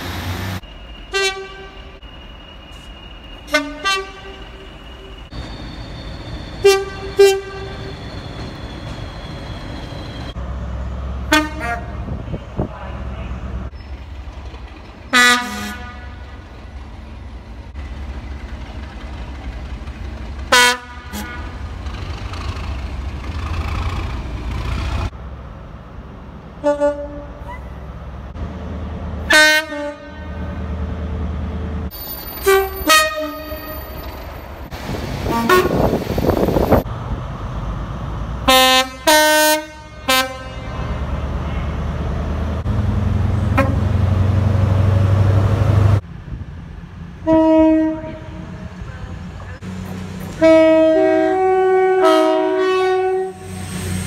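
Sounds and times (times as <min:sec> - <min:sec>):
train engines rumbling: 0:00.0 - 0:54.0
train horn blasts: 0:01.1 - 0:01.9, 0:03.5 - 0:04.6, 0:06.6 - 0:07.9, 0:11.3 - 0:12.0, 0:15.1 - 0:16.3, 0:20.5 - 0:21.5, 0:26.6 - 0:27.4, 0:29.2 - 0:30.6, 0:32.4 - 0:33.7, 0:35.3 - 0:36.0, 0:38.5 - 0:40.9, 0:43.5 - 0:43.9, 0:47.2 - 0:48.5, 0:50.4 - 0:53.5.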